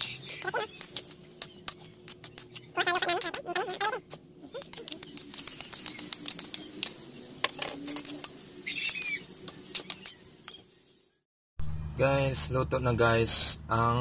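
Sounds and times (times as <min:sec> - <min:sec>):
hiss of frying: 0:00.0 - 0:02.5, 0:04.6 - 0:11.0.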